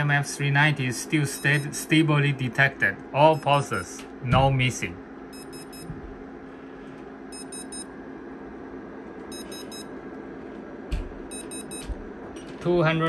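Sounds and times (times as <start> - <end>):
short high alarm beeps: 5.3 - 5.9, 7.3 - 7.9, 9.3 - 9.9, 11.3 - 11.9.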